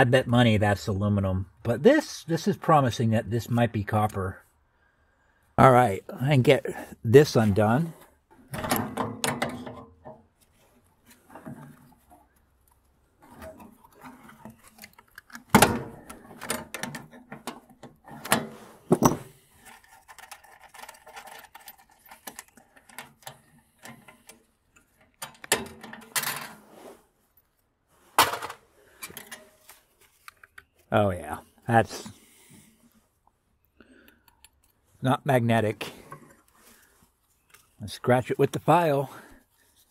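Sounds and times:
wrench clinking and scraping metal: 8.4 - 10.2, 11.1 - 26.7.

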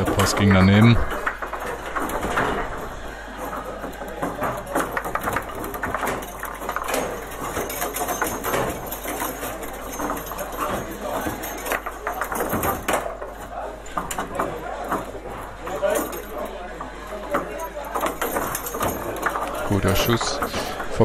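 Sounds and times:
foosball clacks and knocks: 0.0 - 21.0.

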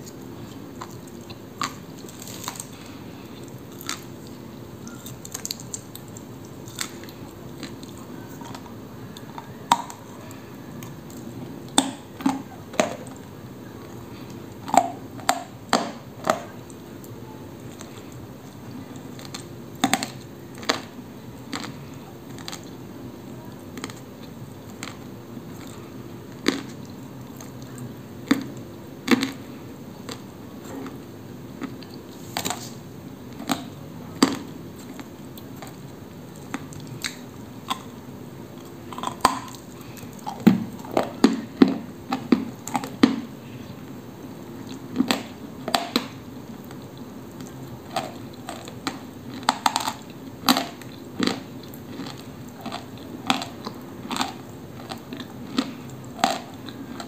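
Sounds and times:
clay being bitten and chewed: 0.0 - 16.5, 17.7 - 22.8, 23.7 - 29.4, 44.6 - 57.0.

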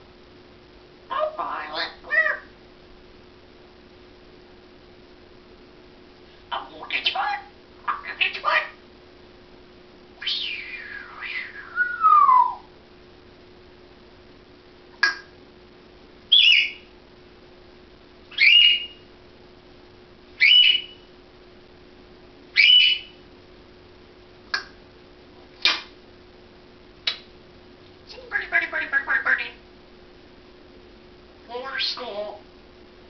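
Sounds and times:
parrot whistling: 10.2 - 12.7, 16.3 - 16.9, 18.3 - 19.0, 20.4 - 21.0, 22.6 - 23.2
sharp clicks: 27.0 - 27.3.

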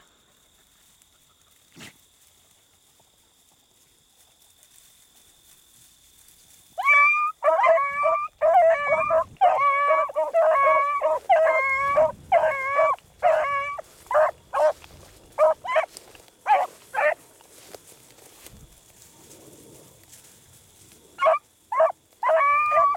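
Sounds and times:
dog barking: 6.8 - 14.8, 15.4 - 15.9, 16.5 - 17.2, 21.2 - 22.9
beagle baying: 6.8 - 17.2, 21.2 - 22.9.

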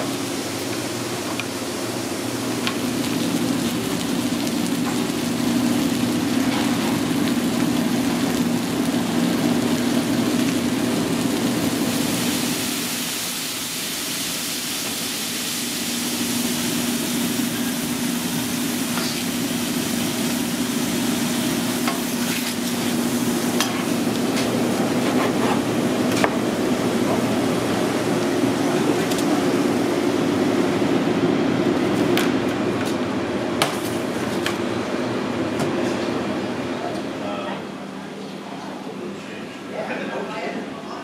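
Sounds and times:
steak sizzling on griddle: 0.0 - 28.3.

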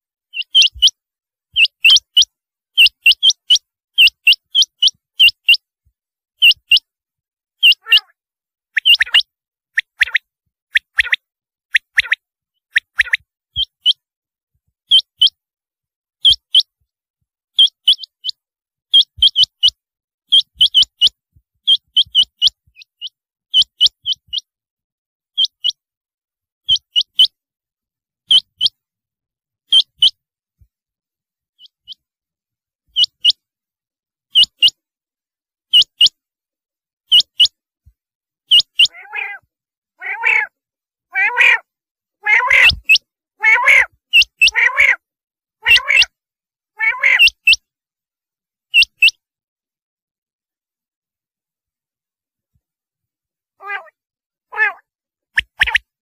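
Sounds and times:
quail calling: 7.6 - 8.2, 8.8 - 10.2, 38.5 - 45.0, 45.6 - 46.2, 46.8 - 47.6, 53.6 - 54.8, 55.4 - 55.8.

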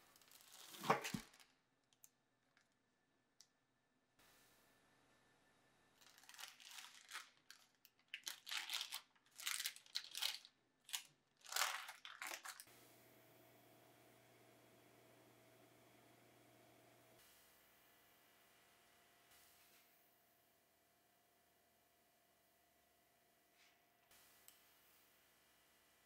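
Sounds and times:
parchment paper rustling: 6.0 - 12.7.

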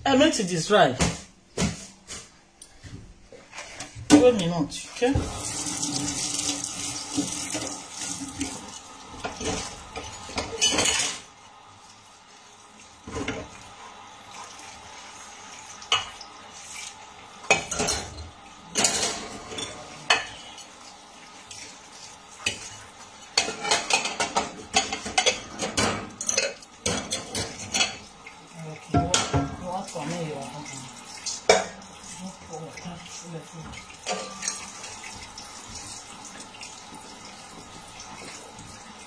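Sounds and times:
dishes clinking in metal sink: 9.2 - 11.3, 13.0 - 13.6, 17.4 - 20.7, 22.4 - 28.1, 28.8 - 31.9, 33.6 - 35.9.

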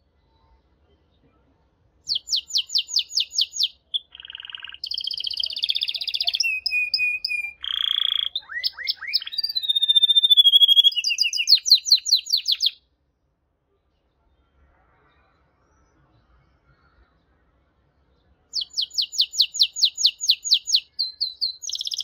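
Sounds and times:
canary singing: 2.0 - 12.8, 18.5 - 22.0.

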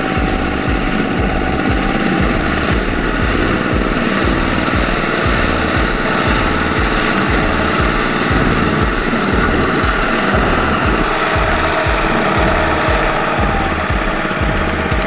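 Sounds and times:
diesel engine chugging: 0.0 - 15.0
harvester engine drone: 0.0 - 15.0.

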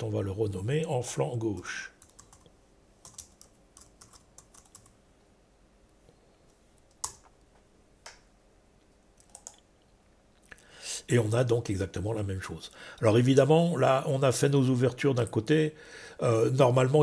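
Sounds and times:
computer keyboard typing: 2.0 - 5.0, 6.9 - 7.3, 9.2 - 9.6.

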